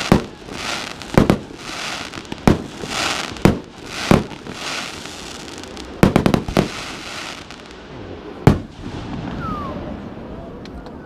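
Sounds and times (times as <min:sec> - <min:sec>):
firework shells bursting with bangs: 0:00.0 - 0:07.6, 0:08.5 - 0:09.4
firework crackling hiss: 0:00.0 - 0:10.0.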